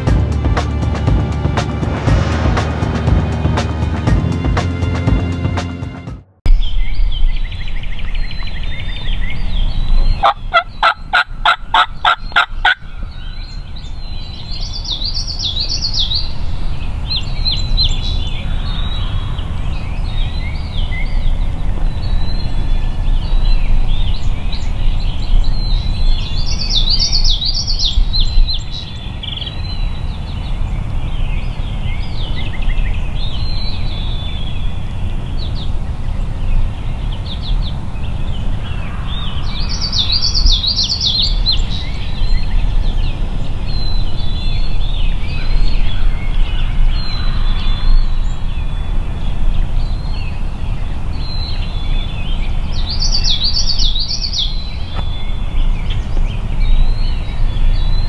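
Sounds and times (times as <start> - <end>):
steady low rumble: 0.0 - 12.3
songbirds chirping: 6.5 - 58.0
raspy turkey yelps: 10.2 - 12.8.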